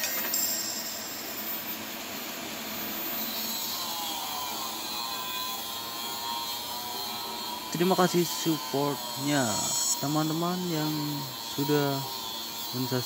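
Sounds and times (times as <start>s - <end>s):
welding arc hissing: 0.0s - 13.0s.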